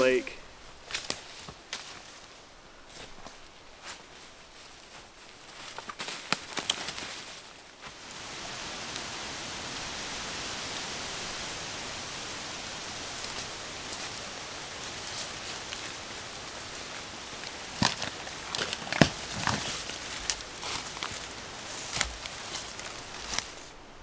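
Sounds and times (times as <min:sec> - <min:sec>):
footsteps on dry leaves: 0:00.0 - 0:08.0, 0:13.0 - 0:23.8
steady hiss: 0:00.0 - 0:24.0.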